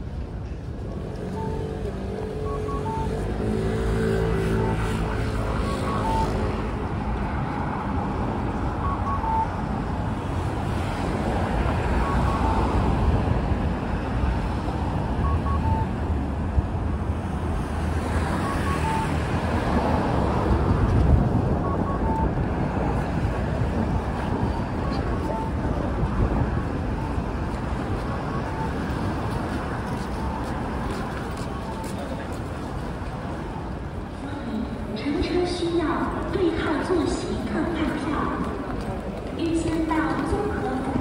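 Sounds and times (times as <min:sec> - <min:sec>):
traffic rumble: 0:00.0 - 0:41.0
electronic signal beeps: 0:01.3 - 0:06.7, 0:08.7 - 0:09.7, 0:11.9 - 0:12.9, 0:14.3 - 0:16.1, 0:18.2 - 0:19.2, 0:21.6 - 0:23.1, 0:24.2 - 0:25.8, 0:26.9 - 0:29.2, 0:29.9 - 0:30.6, 0:31.3 - 0:32.2.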